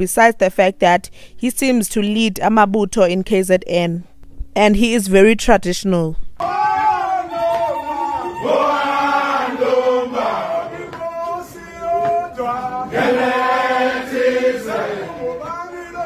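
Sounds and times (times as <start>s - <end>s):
men chanting a song: 6.4s - 16.0s.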